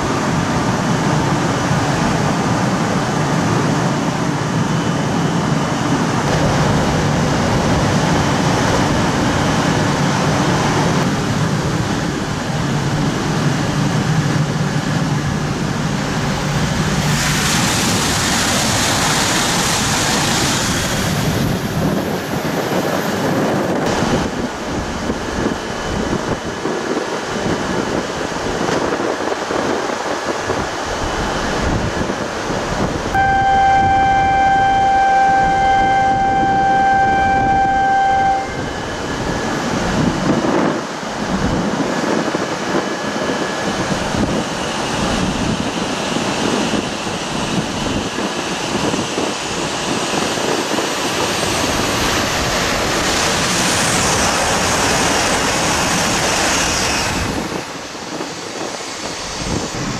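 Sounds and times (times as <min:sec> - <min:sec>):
train running noise: 0:00.0 - 0:59.9
steady high tone: 0:33.2 - 0:39.6.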